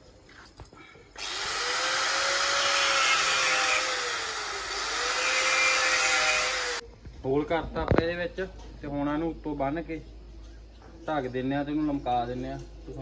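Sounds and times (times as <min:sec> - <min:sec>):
angle grinder cutting clay pot: 0:01.2 - 0:06.8.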